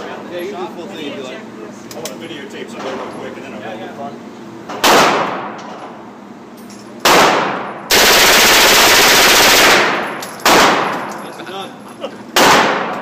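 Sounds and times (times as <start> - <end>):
automatic gunfire echoing indoors: 7.0 - 11.2, 12.4 - 13.0.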